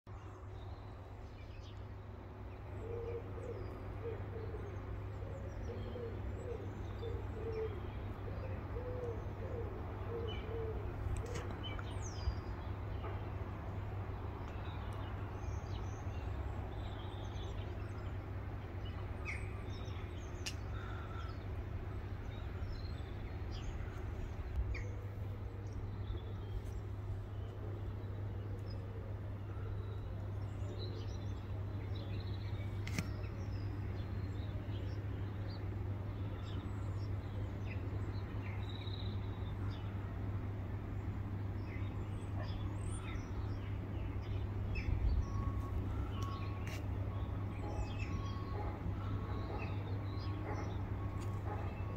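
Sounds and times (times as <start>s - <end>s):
low hooting bird calls: 2.6s - 12.0s, 19.2s - 21.6s, 22.2s - 35.1s, 41.7s - 51.9s.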